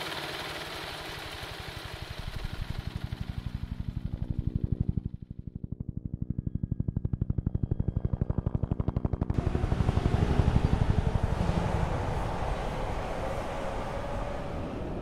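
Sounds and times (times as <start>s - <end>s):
dirt bike engine idling: 0.0s - 4.1s
rough engine noise: 0.0s - 5.5s, 8.5s - 15.0s.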